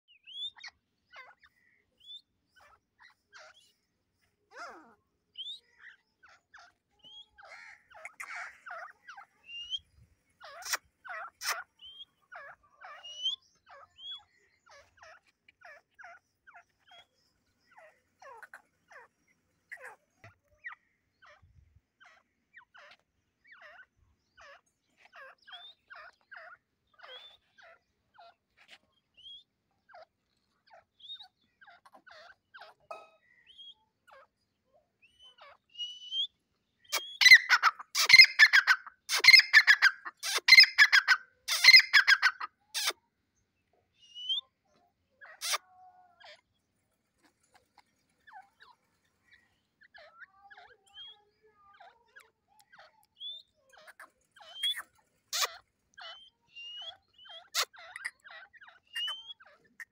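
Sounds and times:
birds clucking softly: 0.0s - 59.9s
loud fast bird calls: 4.5s - 20.0s, 36.8s - 43.0s, 53.2s - 59.9s.

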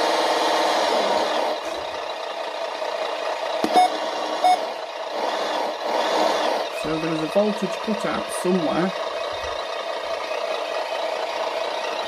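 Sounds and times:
simulated truck engine sound: 0.0s - 12.0s
short beeps: 3.7s - 4.6s.

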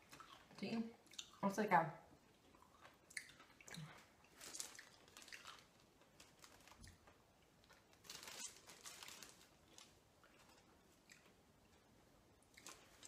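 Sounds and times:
crunching and chewing candy: 2.2s - 11.9s, 12.5s - 13.0s.

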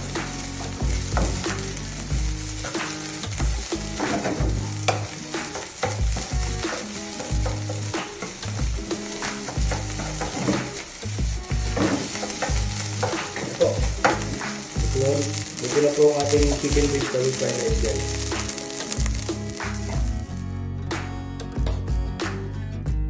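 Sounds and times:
fried rice sizzling in pan: 0.0s - 20.3s
wooden spatula scraping pan: 9.4s - 10.9s, 11.6s - 18.6s.

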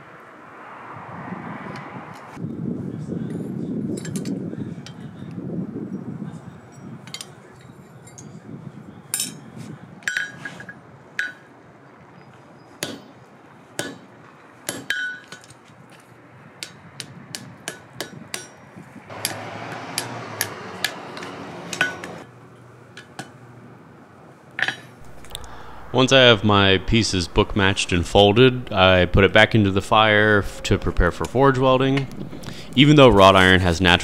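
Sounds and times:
hammer striking hot iron on anvil: 12.8s - 13.1s, 13.8s - 14.1s, 14.7s - 15.5s, 17.4s - 22.2s
steady rushing noise: 25.0s - 34.0s.

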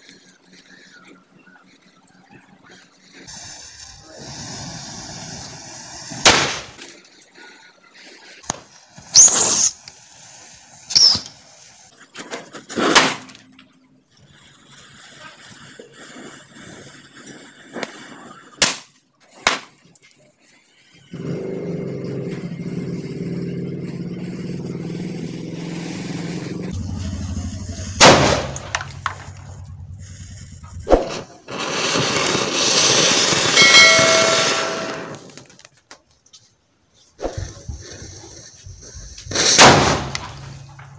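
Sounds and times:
matchheads hissing and crackling: 0.0s - 7.4s, 8.0s - 12.6s, 14.1s - 18.6s, 28.7s - 34.4s
firecrackers bursting: 2.6s - 13.5s, 14.1s - 21.0s, 22.6s - 35.8s, 37.2s - 40.9s
steady low drone: 26.6s - 30.9s.

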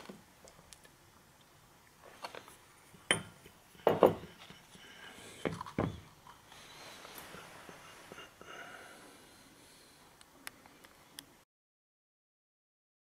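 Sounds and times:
metal parts knocking on wood: 3.1s - 4.5s.

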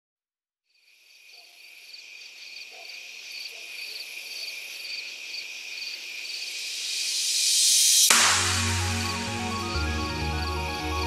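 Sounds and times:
crickets chirping: 0.7s - 8.1s.

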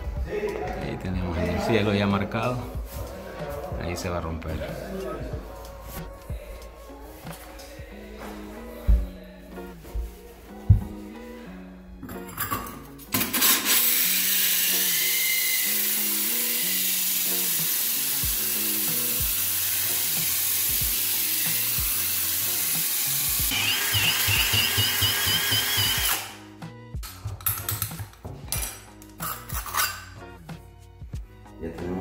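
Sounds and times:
background music: 0.0s - 32.0s
drill grinding through tile: 13.2s - 26.4s.

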